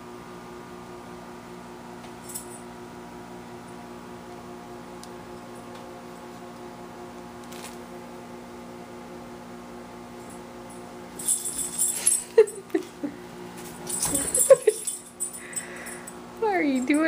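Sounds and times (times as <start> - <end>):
steady low hum: 0.0 - 17.0
metallic jingling: 11.2 - 12.6, 13.8 - 16.1.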